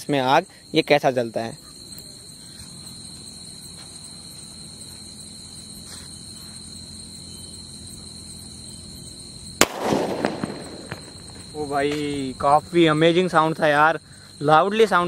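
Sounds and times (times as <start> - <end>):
crickets chirping: 0.0 - 15.0
fuse burning: 1.9 - 14.5
firecracker explosion bang: 9.6 - 12.3.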